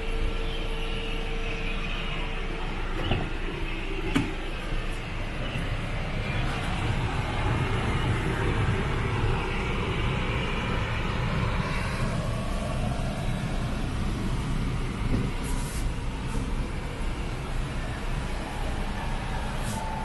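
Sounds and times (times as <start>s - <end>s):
brief high hiss: 15.4s - 16.4s.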